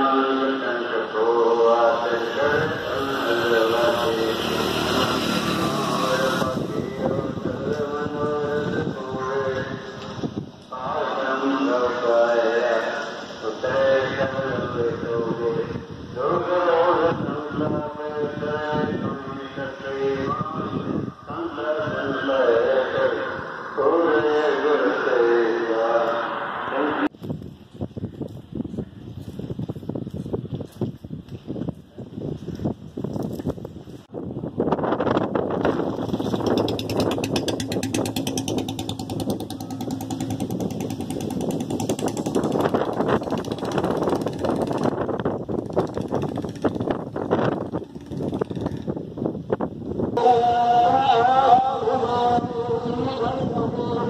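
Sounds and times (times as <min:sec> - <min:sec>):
small engine running: 0:03.0 - 0:06.6, 0:36.0 - 0:49.0
person chanting long notes: 0:50.2 - 0:54.0.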